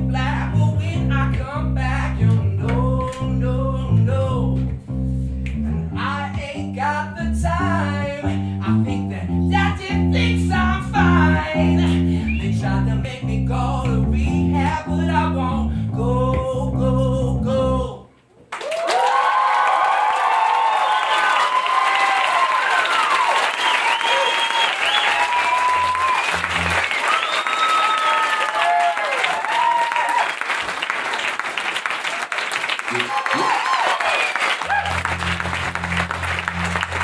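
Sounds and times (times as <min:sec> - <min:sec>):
man singing: 0:00.0 - 0:04.7, 0:06.0 - 0:18.1
electric bass guitar: 0:00.0 - 0:18.1, 0:25.8 - 0:26.9, 0:34.6 - 0:37.0.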